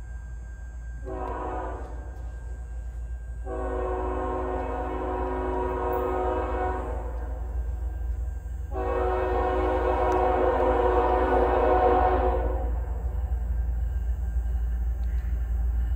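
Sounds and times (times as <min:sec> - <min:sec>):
low train rumble: 0:00.0 - 0:15.9
train air horn blasts: 0:01.0 - 0:02.3, 0:03.4 - 0:07.6, 0:08.7 - 0:13.1.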